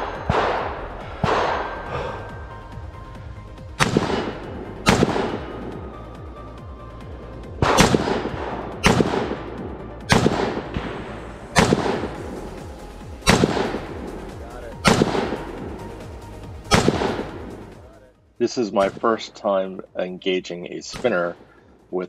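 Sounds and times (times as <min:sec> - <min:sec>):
rifle shots with long echo: 0:00.0 - 0:01.9, 0:03.8 - 0:06.1, 0:07.6 - 0:12.6, 0:13.2 - 0:15.9, 0:16.6 - 0:17.7, 0:18.8 - 0:19.4, 0:20.9 - 0:21.8.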